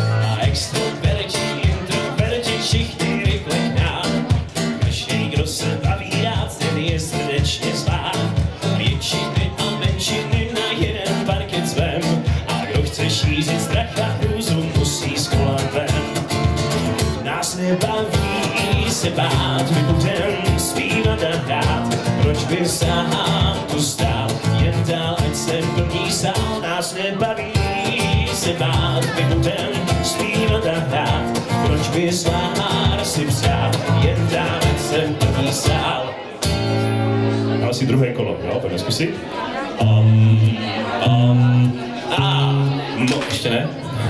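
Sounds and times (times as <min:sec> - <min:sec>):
person singing: 0:00.0 - 0:16.5, 0:17.2 - 0:36.2
acoustic guitar strumming: 0:00.0 - 0:44.0
drum and bass beat: 0:00.4 - 0:17.2, 0:17.8 - 0:26.6.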